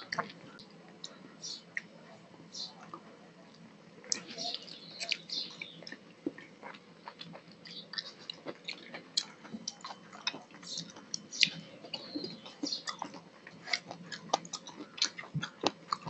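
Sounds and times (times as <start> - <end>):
wet chewing: 4.1 - 16.0.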